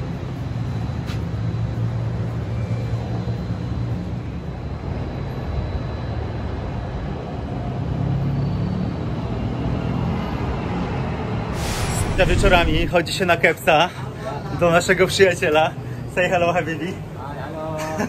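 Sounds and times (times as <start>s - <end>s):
distant city traffic rumble: 0.0s - 13.8s.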